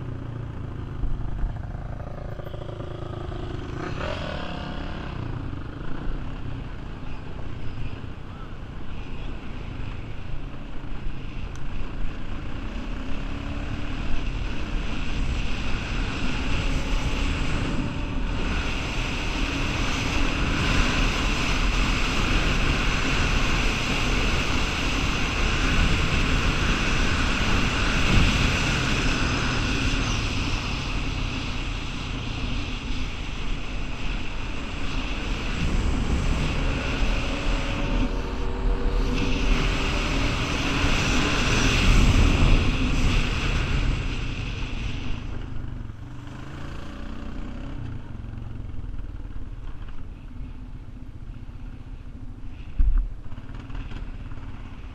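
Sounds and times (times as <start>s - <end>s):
atv engine running: 0.0s - 7.6s.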